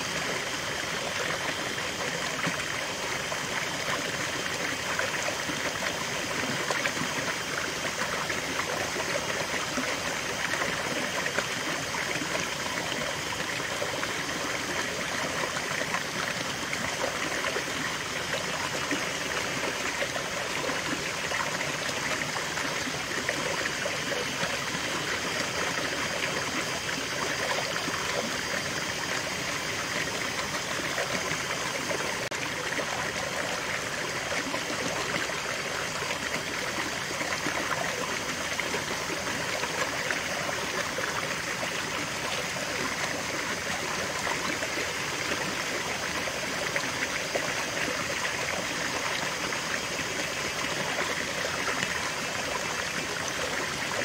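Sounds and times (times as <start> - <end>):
stream splashing and trickling: 0.0 - 54.0.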